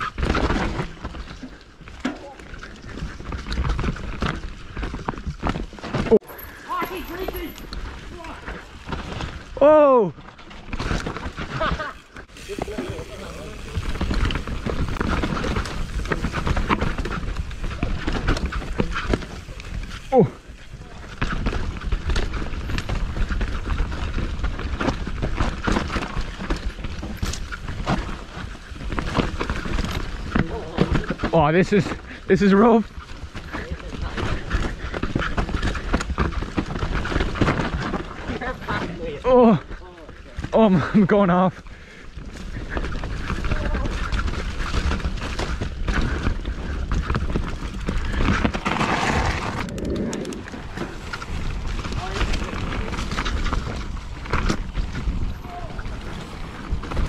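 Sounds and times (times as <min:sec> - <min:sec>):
low rumble of bike on trail: 0:00.0 - 0:57.0
bike clattering and knocking: 0:10.5 - 0:20.1, 0:20.8 - 0:39.2.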